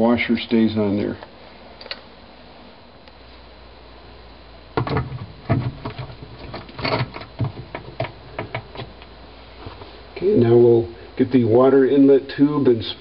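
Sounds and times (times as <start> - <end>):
hard plastic clicks and knocks: 4.8 - 8.9.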